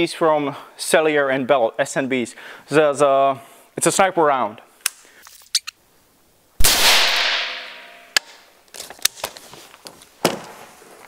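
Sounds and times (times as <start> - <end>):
rifle shot with echo: 6.6 - 8.0.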